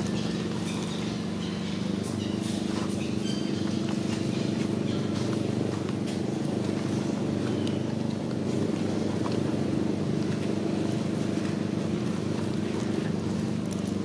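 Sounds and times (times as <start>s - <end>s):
dry leaves ticking: 0.0s - 14.0s
low engine drone: 0.0s - 14.0s.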